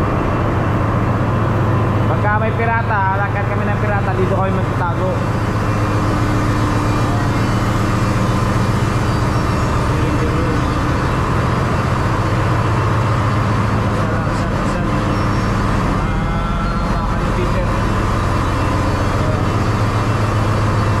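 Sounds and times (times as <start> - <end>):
deep hum: 0.0 - 21.0
ship machinery drone: 0.0 - 21.0.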